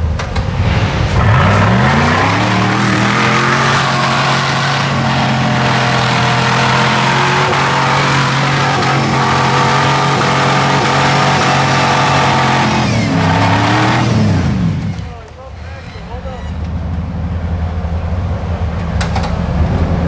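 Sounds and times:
engine running at high revs: 0.1 - 15.1.

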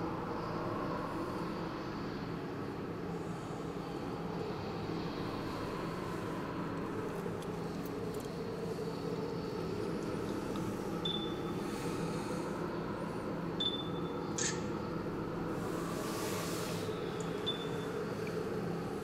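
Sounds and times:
low background hum: 0.0 - 19.0.

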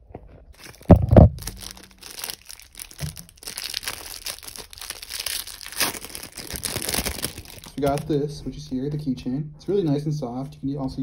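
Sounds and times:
plastic bag crinkling: 0.5 - 8.2.

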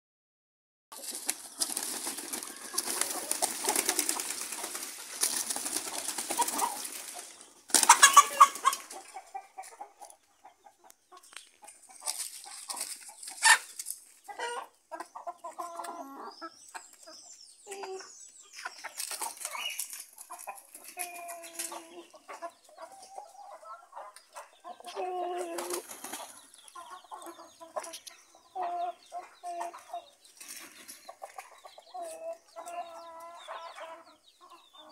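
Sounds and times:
hens clucking: 0.9 - 34.9
chickens flapping and scuffling: 1.0 - 10.2, 11.2 - 14.7, 18.6 - 23.4, 24.0 - 28.1, 29.6 - 33.3
chicken squawk: 7.8 - 9.2.

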